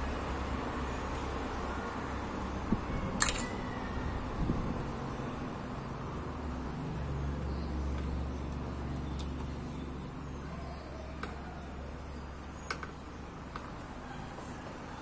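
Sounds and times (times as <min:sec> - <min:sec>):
engine rumbling: 0:00.0 - 0:15.0
metal parts clicking: 0:03.2 - 0:03.6.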